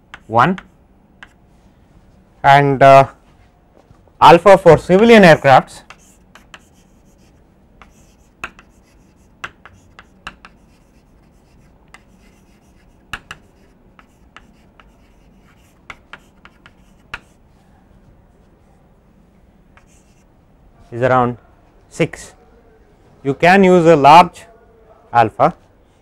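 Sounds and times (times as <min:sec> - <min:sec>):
chalk tapping and scratching on chalkboard: 0:00.0 - 0:01.4, 0:05.7 - 0:17.4, 0:19.8 - 0:20.3.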